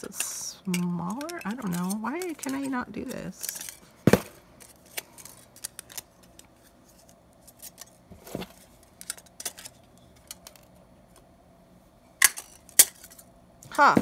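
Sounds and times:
thin aluminium crinkling: 0.0 - 4.0, 4.6 - 10.8.

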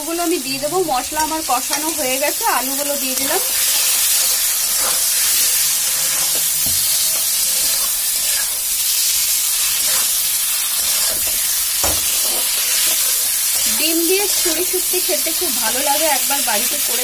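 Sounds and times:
spices sizzling in hot oil: 0.0 - 17.0
metal spatula scraping pan: 3.6 - 8.7, 9.6 - 14.6.

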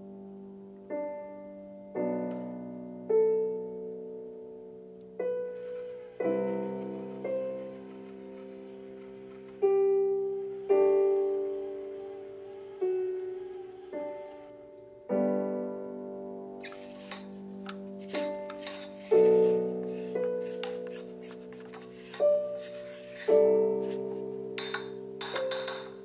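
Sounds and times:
slow solo piano: 0.0 - 26.0.

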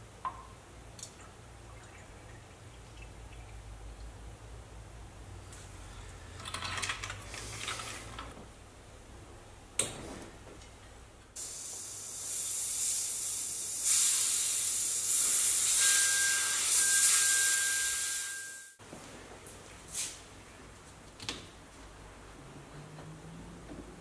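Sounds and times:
pressurized air hissing: 11.4 - 18.3
thin steady whistle: 15.6 - 18.8.

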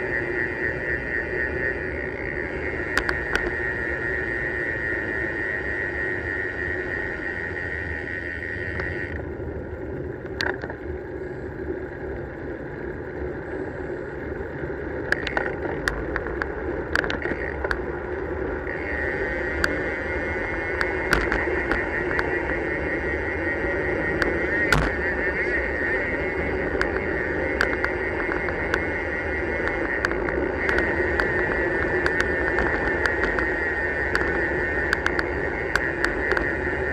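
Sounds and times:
bicycle tyres rolling on tarmac: 0.0 - 36.9
high steady whirr: 0.0 - 36.9
wind rushing over microphone: 0.0 - 36.9
bike clicks and knocks: 2.0 - 3.7, 10.2 - 10.8, 15.0 - 17.9, 18.6 - 23.3, 24.0 - 36.9.

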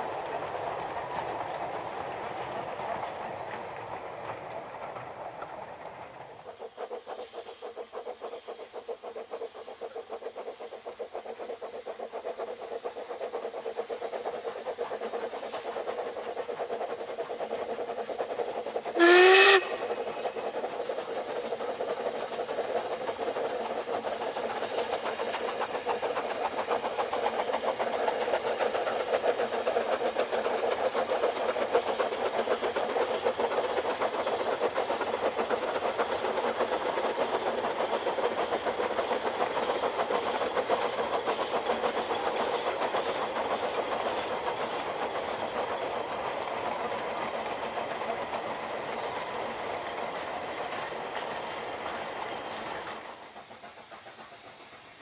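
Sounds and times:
steam locomotive running: 0.0 - 55.0
steam whistle blast: 19.0 - 19.8.

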